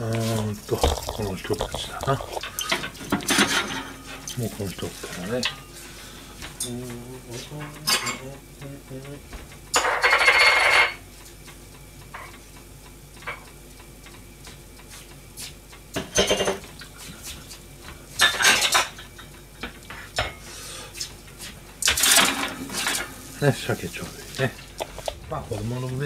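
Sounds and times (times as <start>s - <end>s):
dishes and pans clattering: 0.8s - 4.4s, 7.6s - 8.3s, 9.3s - 11.0s, 16.0s - 16.7s, 18.2s - 20.5s, 21.8s - 23.2s.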